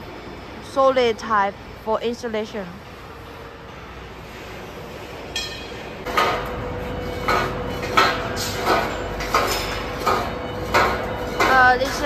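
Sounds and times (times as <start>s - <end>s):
machine hum: 0.0s - 12.0s
hammer striking steel: 5.3s - 12.0s.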